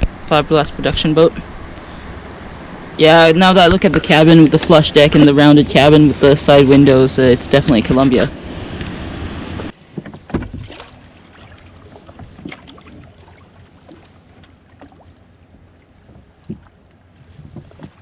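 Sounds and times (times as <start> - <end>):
steady rush of noise: 0.0 - 10.2
light water splashes: 9.7 - 18.0
oars knocking in oarlocks: 9.8 - 15.0, 15.6 - 18.0.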